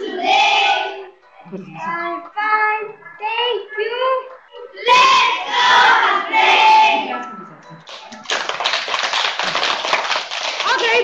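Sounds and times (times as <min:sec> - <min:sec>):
children singing together: 0:00.0 - 0:01.2, 0:04.6 - 0:07.2.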